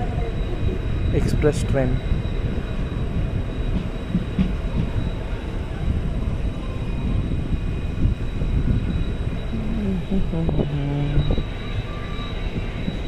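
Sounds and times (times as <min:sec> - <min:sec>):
train rumbling on rails: 0:00.0 - 0:13.0.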